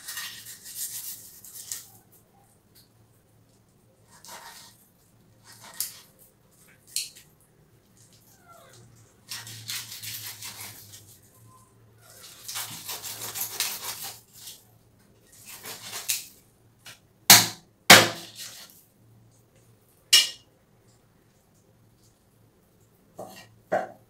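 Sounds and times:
knife scraping fish scales: 0.0s - 2.0s, 4.0s - 4.8s, 5.4s - 6.2s, 9.2s - 11.3s, 12.1s - 14.6s, 15.3s - 16.4s, 18.2s - 18.8s
knife chopping into wooden block: 17.3s - 18.5s.

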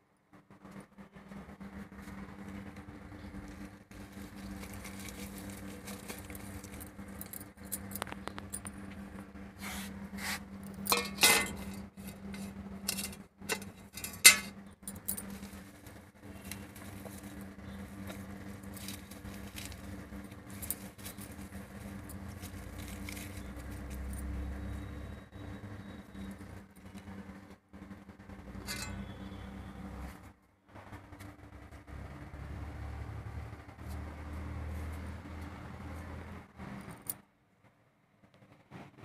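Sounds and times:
steady low hum: 0.0s - 37.1s
metal clank on stone floor: 10.8s - 14.6s, 28.6s - 29.2s
steel plate clattering and scraping: 10.8s - 14.6s, 28.6s - 29.1s.

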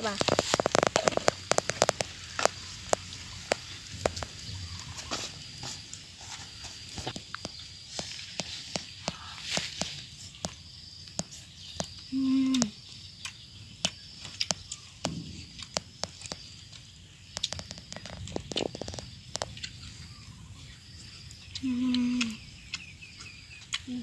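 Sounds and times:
crab shells cracking: 0.0s - 4.2s
insects chirring: 0.0s - 24.0s
person humming: 12.1s - 12.8s, 21.6s - 22.4s.

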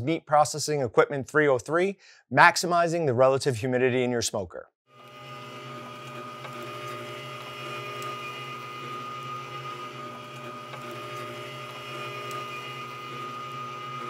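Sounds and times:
electric motor hum: 4.9s - 14.0s.

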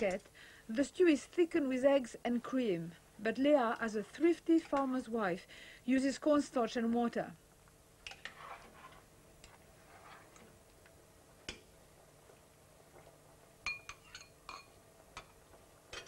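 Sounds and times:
spoon clinking against dish: 13.7s - 14.8s.

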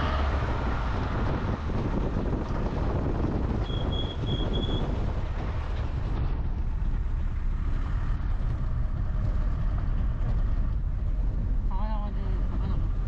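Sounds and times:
wind on microphone: 0.0s - 11.7s
car engine and road rumble: 0.0s - 13.0s.

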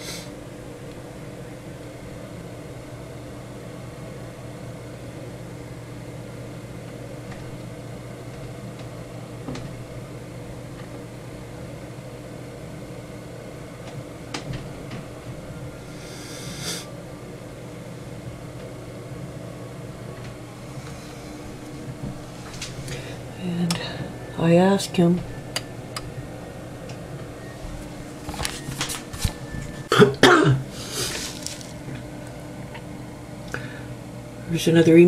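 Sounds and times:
low mechanical hum: 0.0s - 35.0s
short rustle: 30.8s - 31.8s.

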